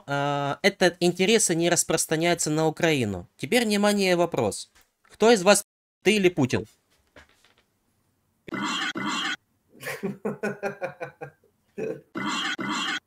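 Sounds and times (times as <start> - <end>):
man laughing: 9.8 - 12.1.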